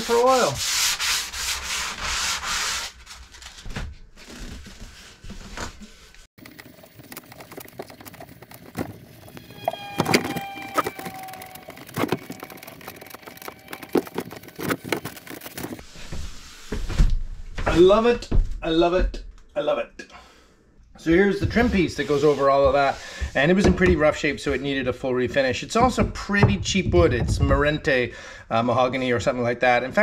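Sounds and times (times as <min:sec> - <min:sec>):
sponge sanding wood: 0:00.0 - 0:03.0, 0:21.4 - 0:23.2.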